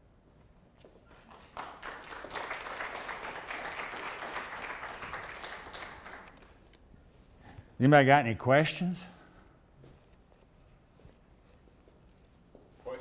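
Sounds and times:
audience applauding: 1.1s - 6.6s.

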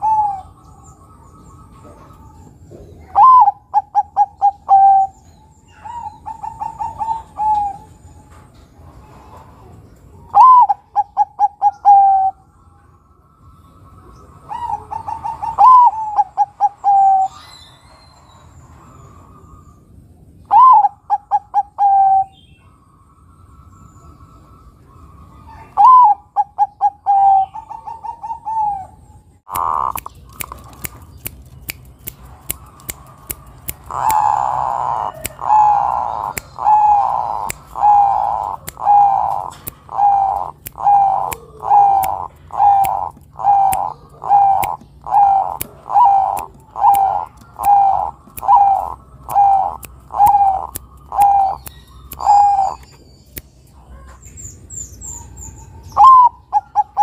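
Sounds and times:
dove cooing: 0.0s - 7.9s, 10.3s - 12.4s, 14.2s - 17.4s, 20.5s - 22.4s, 25.5s - 29.0s, 29.6s - 31.0s, 32.5s - 52.8s, 55.2s - 57.0s
sharp ticks: 29.5s - 43.9s, 44.5s - 53.5s.

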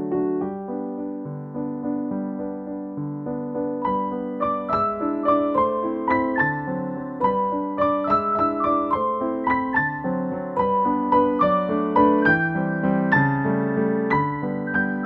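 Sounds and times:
gentle piano melody: 0.0s - 15.0s.

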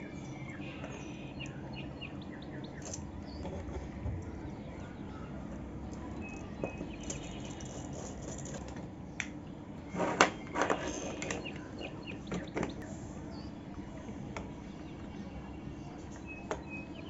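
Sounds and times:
background hum: 0.0s - 17.0s.

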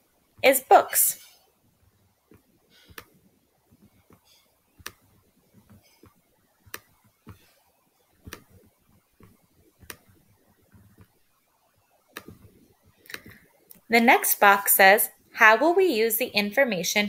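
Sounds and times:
stylus tapping on tablet screen: 1.8s - 11.4s, 12.0s - 13.9s.

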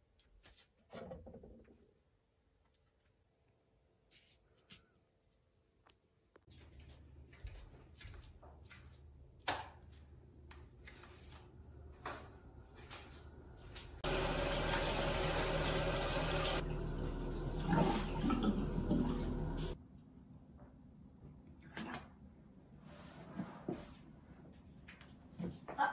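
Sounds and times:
footsteps: 6.4s - 9.1s
tap water running into sink: 14.0s - 19.8s.

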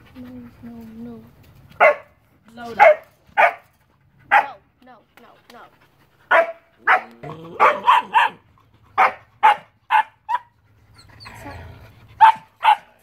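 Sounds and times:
dog panting: 0.0s - 13.0s
dog barking: 1.8s - 3.6s, 4.3s - 4.6s, 6.3s - 8.4s, 9.0s - 10.5s, 12.2s - 13.0s.

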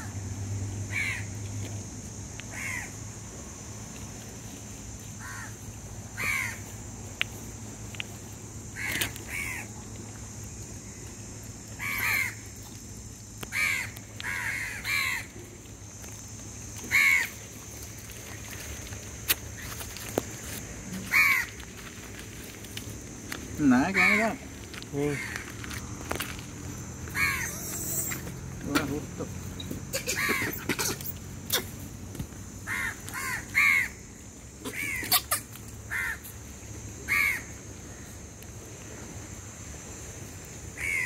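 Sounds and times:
crow cawing: 0.9s - 1.3s, 2.5s - 2.9s, 5.2s - 5.5s, 6.2s - 6.6s, 8.8s - 9.7s, 11.8s - 12.4s, 13.5s - 15.3s, 16.9s - 17.3s, 21.1s - 21.6s, 23.9s - 24.4s, 25.0s - 25.5s, 27.1s - 28.2s, 29.9s - 30.7s, 32.7s - 34.0s, 34.6s - 35.2s, 35.9s - 36.2s, 37.1s - 38.0s, 40.8s - 41.0s.

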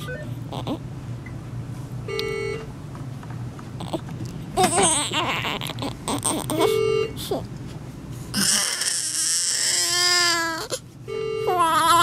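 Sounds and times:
newborn baby crying: 0.5s - 0.8s, 3.8s - 7.4s, 8.3s - 10.8s, 11.5s - 12.0s.

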